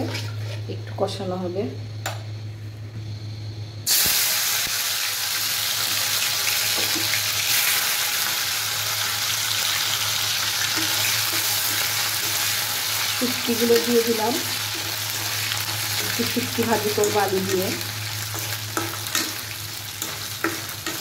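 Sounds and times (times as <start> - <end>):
fish frying in hot oil: 3.9 - 21.0
spatula stirring in wok: 18.3 - 21.0.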